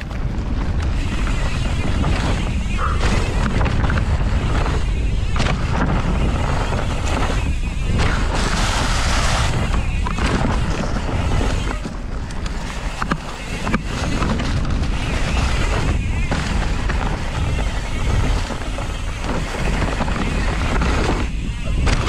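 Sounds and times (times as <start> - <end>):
bike knocking over bumps: 0.0 - 22.0
bike tyre noise on dirt: 0.0 - 22.0
wind rumble on microphone: 0.0 - 22.0.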